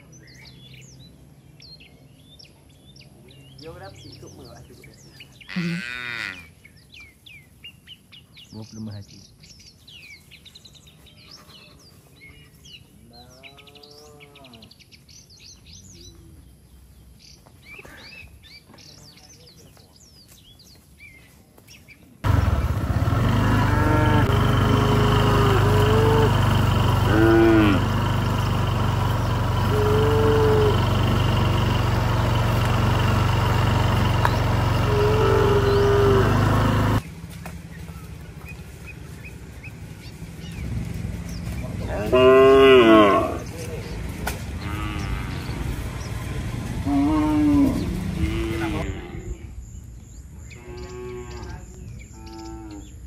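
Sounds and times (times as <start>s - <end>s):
small birds chirping: 0.0s - 42.2s, 43.1s - 53.0s
cow mooing: 5.5s - 6.5s, 22.3s - 28.4s, 29.4s - 37.0s, 41.9s - 43.4s, 44.6s - 45.5s, 46.8s - 49.5s, 50.6s - 53.0s
low mechanical drone: 22.2s - 42.2s.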